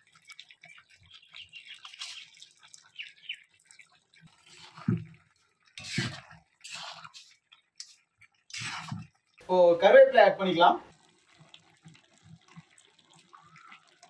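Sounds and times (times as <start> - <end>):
spoon scraping a pan: 4.3 - 5.0, 5.6 - 9.2
meat sizzling in a pan: 11.0 - 14.0.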